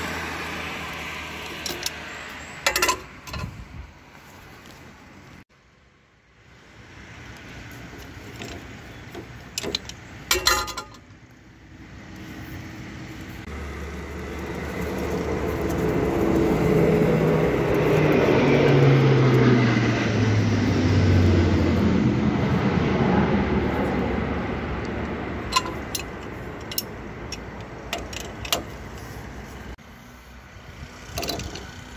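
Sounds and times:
vehicle passing by: 0.0 - 3.8, 11.3 - 31.9
sharp metal clinks: 9.6 - 11.0.

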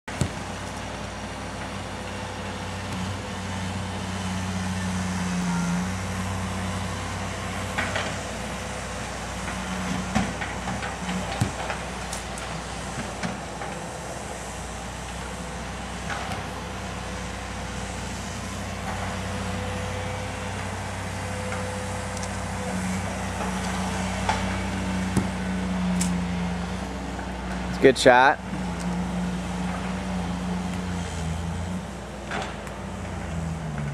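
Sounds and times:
heavy vehicle engine drone: 0.1 - 33.9
soccer ball kicks: 0.2 - 0.5, 11.4 - 11.6, 25.1 - 25.4.

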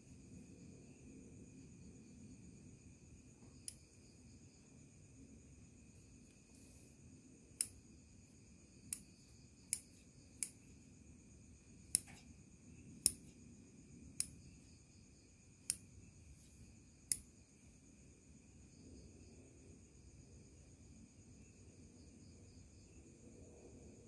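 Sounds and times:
scissors snipping: 9.7 - 10.6, 11.9 - 12.2.

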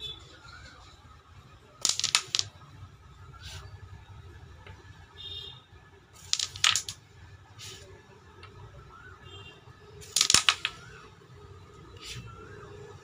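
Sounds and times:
carrom striker clacking coins: 1.8 - 2.6, 6.2 - 7.0, 10.0 - 10.9.

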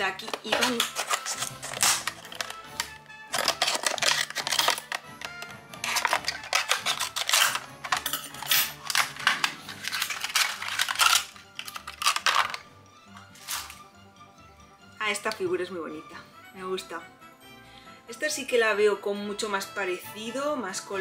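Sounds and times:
plastic packaging crinkling: 0.0 - 13.9
background music: 0.0 - 21.0.

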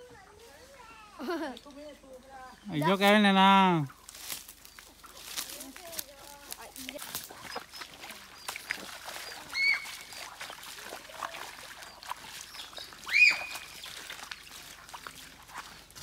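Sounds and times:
footsteps crunching over stones: 0.0 - 16.0
footsteps splashing in muddy water: 2.6 - 16.0
high whistled calls: 7.4 - 10.7, 11.8 - 14.1.

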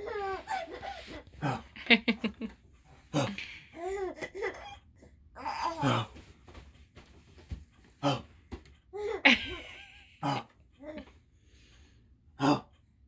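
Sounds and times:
baby laughing and babbling: 0.0 - 1.6, 3.2 - 6.1, 8.9 - 9.6, 10.8 - 11.1.

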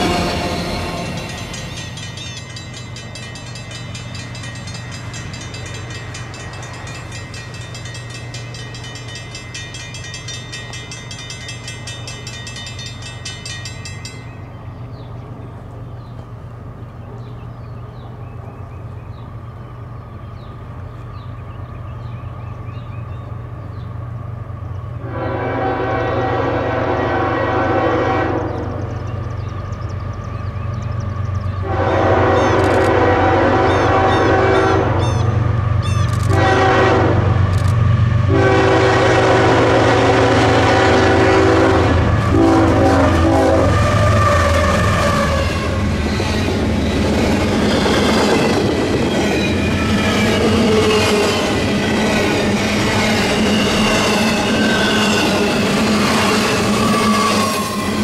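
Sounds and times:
crossing bells ringing rapidly: 0.0 - 14.7, 38.4 - 58.0
locomotive horn blast: 25.0 - 28.8, 31.6 - 35.4, 36.2 - 37.4, 38.2 - 45.9.

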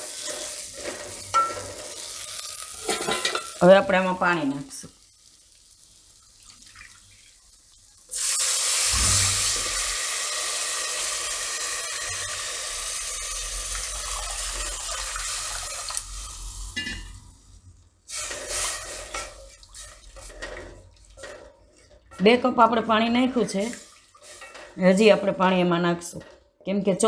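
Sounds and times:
water hissing in hot oil: 0.0 - 3.4, 4.3 - 21.1, 23.5 - 24.7
pot being stirred: 0.0 - 3.6, 18.1 - 26.4.

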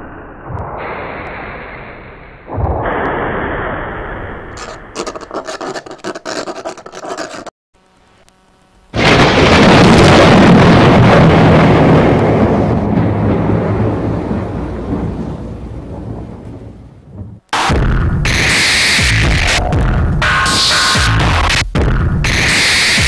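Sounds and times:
thunder: 0.0 - 4.6, 9.0 - 18.2
faint hum: 7.8 - 9.0
low rumble with crackling: 7.8 - 18.1
rain: 9.0 - 17.4.

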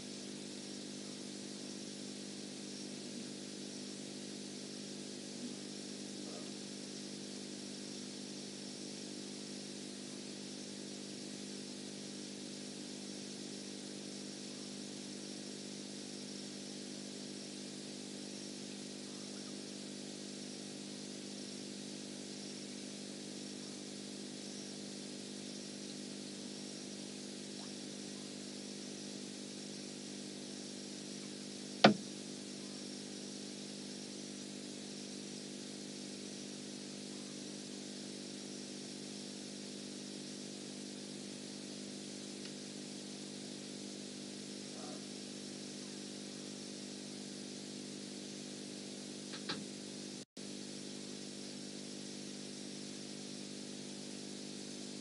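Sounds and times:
steady motor hum: 0.0 - 55.0
sharp click: 31.8 - 32.0, 49.3 - 49.7.

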